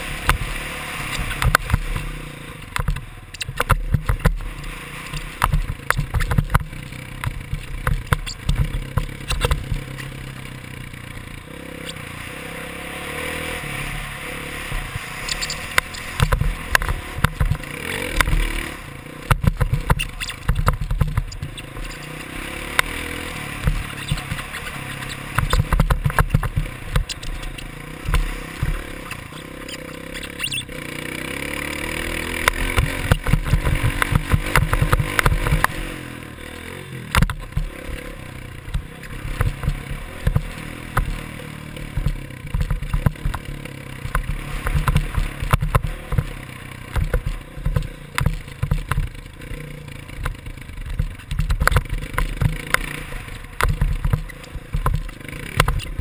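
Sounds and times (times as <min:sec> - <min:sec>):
dirt bike engine running hard: 0:00.0 - 0:56.0
knocks over bumps: 0:01.2 - 0:10.1, 0:14.7 - 0:18.6, 0:19.2 - 0:29.4, 0:32.2 - 0:35.9, 0:37.0 - 0:38.0, 0:38.6 - 0:49.4, 0:50.1 - 0:56.0.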